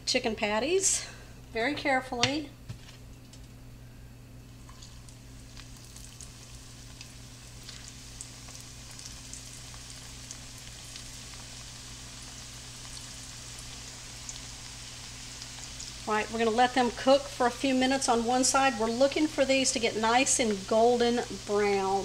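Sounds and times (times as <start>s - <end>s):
oil sizzling with pops: 4.5s - 22.0s.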